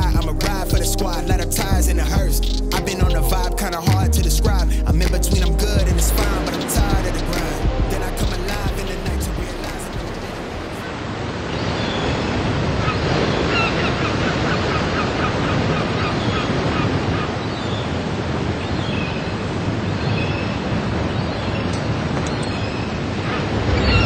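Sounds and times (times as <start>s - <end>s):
bird calling: 0.0s - 10.9s
sea waves on shore: 6.1s - 24.0s.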